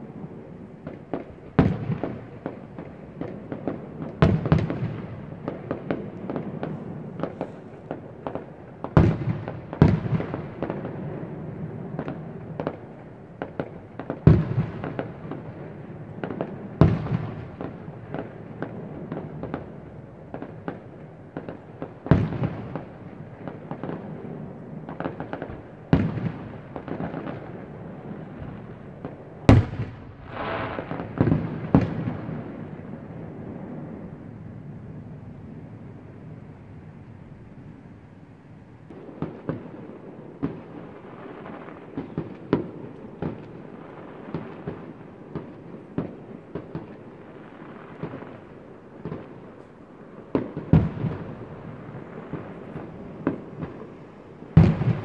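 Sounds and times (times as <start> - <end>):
firework crackles and pops: 0.0 - 55.0
firework shells bursting: 29.5 - 31.5.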